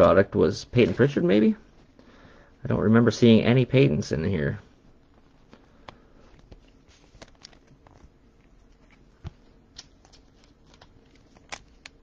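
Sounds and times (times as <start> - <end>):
cards rustling in plastic sleeves: 5.1 - 12.0.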